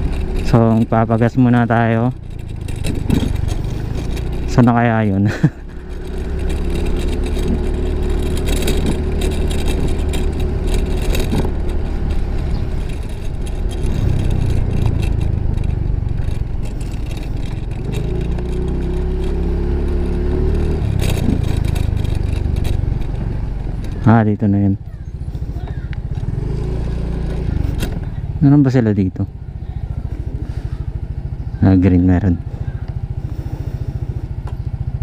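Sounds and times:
scooter engine droning: 0.0 - 35.0.

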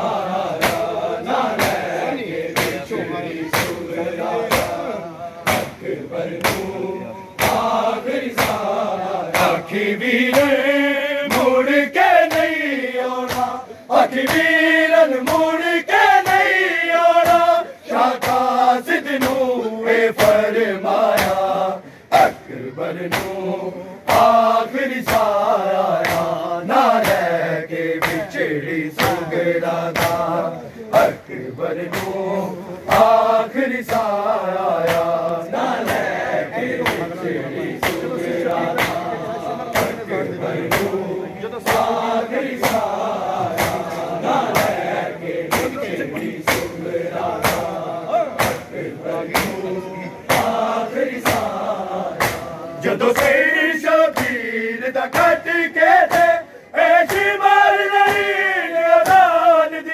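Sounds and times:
men chanting a wailing lament: 0.0 - 59.9
hands slapping bare chests: 0.5 - 1.9, 2.6 - 2.8, 3.5 - 3.8, 5.4 - 5.8, 6.4 - 6.8, 7.4 - 9.6, 11.3 - 11.6, 12.2 - 12.6, 13.2 - 13.6, 18.2 - 18.6, 21.1 - 21.4, 23.0 - 23.4, 24.1 - 29.3, 29.9 - 30.4, 32.9 - 33.2, 33.8 - 37.2, 37.8 - 39.1, 39.7 - 41.0, 41.6 - 49.6, 50.3 - 53.4, 54.1 - 54.4, 56.0 - 56.4, 57.0 - 57.4, 58.0 - 58.4.

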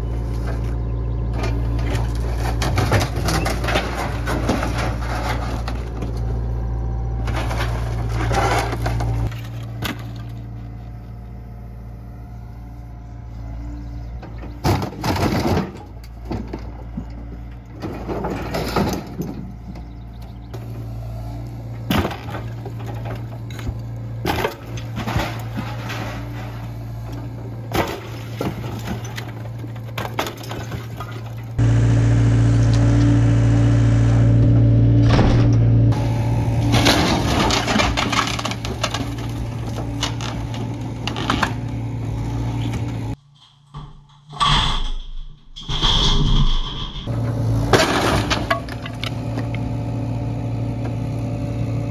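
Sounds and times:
excavator diesel engine running: 0.0 - 43.2, 46.8 - 51.9
wood and metal crashing: 1.4 - 6.2, 7.2 - 10.6, 14.4 - 19.7, 21.8 - 31.6, 35.0 - 42.0, 42.8 - 49.6.

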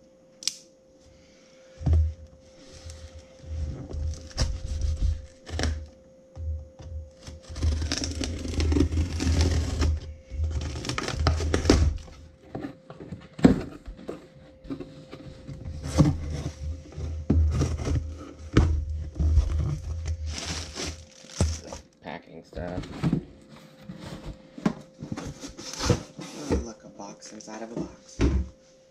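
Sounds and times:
cardboard box being cut open: 4.1 - 5.8, 7.2 - 12.2, 15.7 - 21.8.

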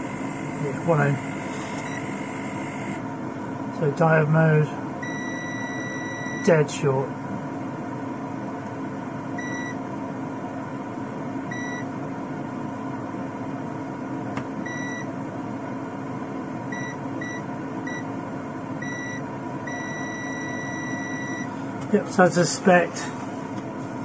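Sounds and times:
multimeter beeping: 0.0 - 3.0, 5.0 - 6.4, 18.8 - 21.5
cooling fan running: 0.0 - 24.0.

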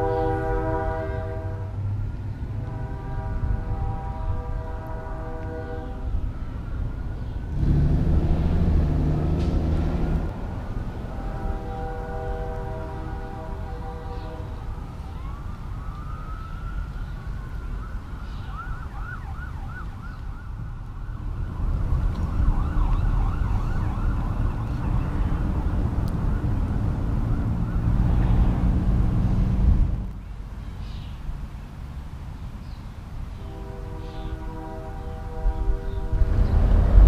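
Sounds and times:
multi-tone horn chord: 0.0 - 1.8, 2.6 - 6.1, 11.2 - 14.6, 33.4 - 36.6
low traffic rumble: 0.0 - 37.0
emergency vehicle siren: 2.7 - 29.3.

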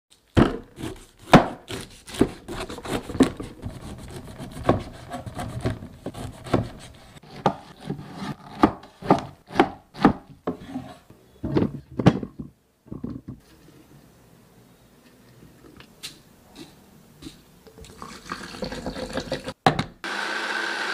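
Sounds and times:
cleaver chopping on wooden board: 8.5 - 10.3.

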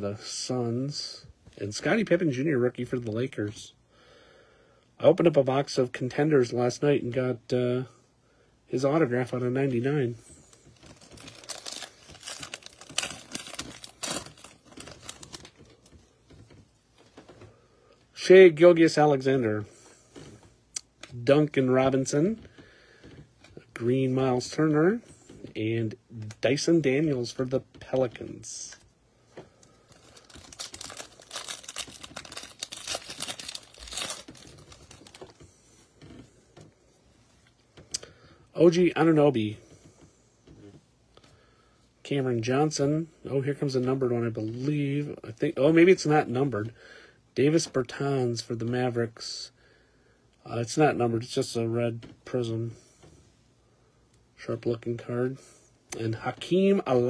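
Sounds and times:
cards rustling: 9.7 - 17.4, 28.1 - 36.2
shiny wrapper tearing and crinkling: 10.8 - 15.6, 29.9 - 35.3.

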